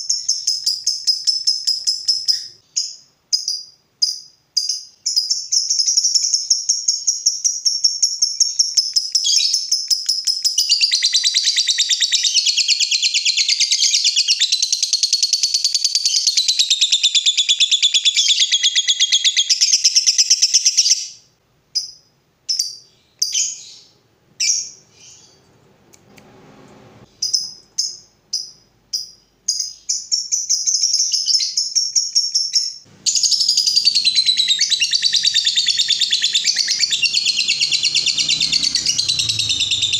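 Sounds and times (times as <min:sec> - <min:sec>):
bird chirps: 0:00.0 - 0:25.5, 0:27.0 - 0:39.9
bird chattering trill: 0:33.0 - 0:39.9.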